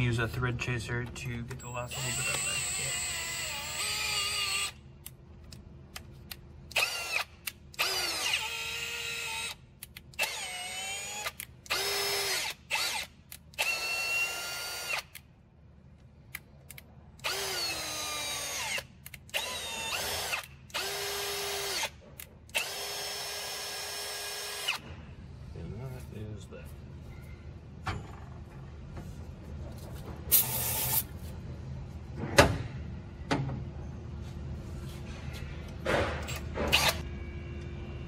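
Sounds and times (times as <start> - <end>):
cordless drill motor whine: 1.9 - 4.8, 6.8 - 9.6, 10.2 - 13.0, 13.6 - 15.1, 17.2 - 18.8, 19.4 - 21.9, 22.6 - 24.8.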